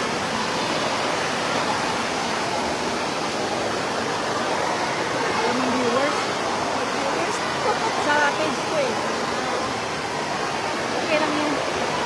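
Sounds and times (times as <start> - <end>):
rushing water-like noise: 0.0 - 12.0.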